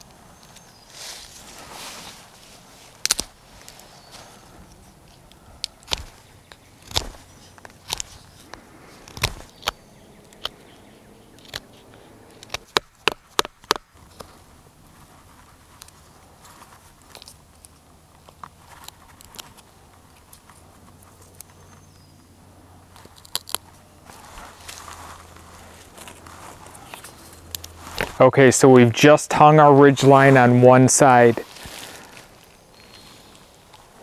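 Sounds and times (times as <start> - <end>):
knife shaving and scraping wood: 0.4 - 10.6, 11.4 - 21.9
knife cutting wood cracks: 2.9 - 3.8, 4.7 - 10.6, 11.3 - 14.4, 23.0 - 23.8.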